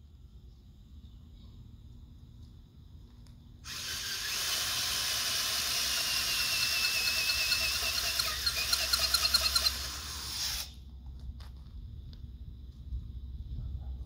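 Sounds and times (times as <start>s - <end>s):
cordless drill boring into dirt: 3.6s - 10.8s.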